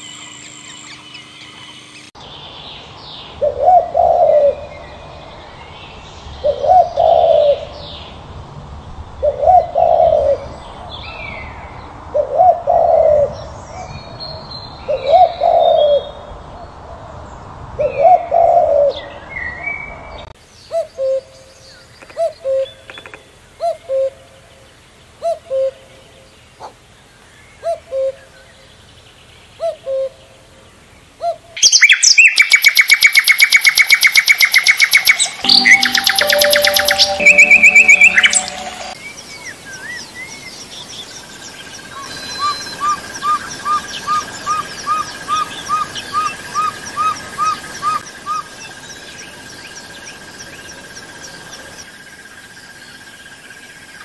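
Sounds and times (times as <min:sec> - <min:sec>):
small birds chirping: 0:20.5 - 0:51.9
fast high-pitched repeating sound: 0:35.4 - 0:39.0.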